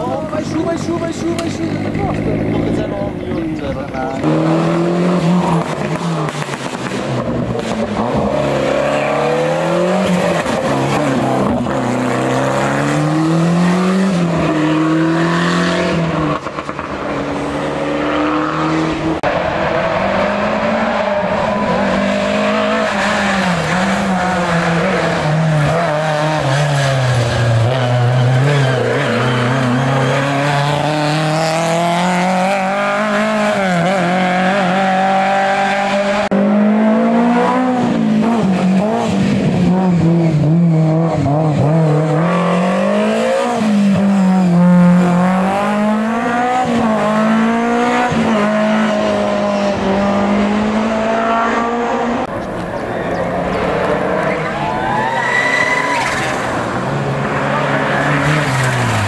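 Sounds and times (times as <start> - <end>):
rally car engines revving: 0.0 - 59.0.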